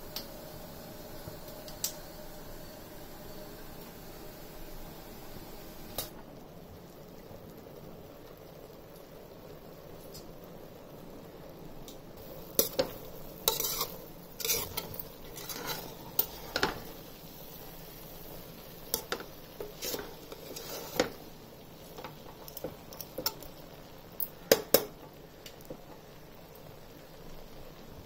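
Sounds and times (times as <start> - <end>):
metal ladle scraping pot: 12.4 - 16.9, 19.0 - 21.2.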